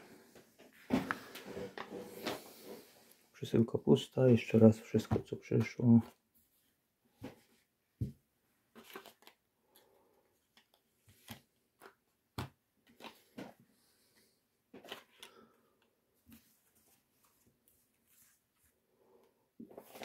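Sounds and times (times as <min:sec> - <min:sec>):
paper and cardboard rustling: 0:19.7 - 0:20.0.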